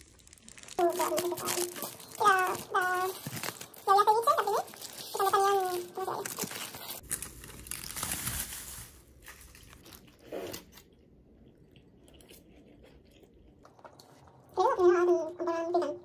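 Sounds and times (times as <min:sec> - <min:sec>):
aluminium foil crinkling: 0:00.0 - 0:10.8
faint chewing: 0:09.4 - 0:14.6.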